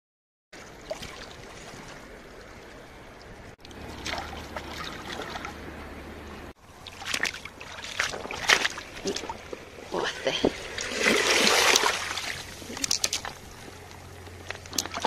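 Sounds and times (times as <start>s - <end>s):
water lapping over pebbles: 3.6s - 15.0s
hands splashing among stones: 6.9s - 9.5s, 10.6s - 13.5s.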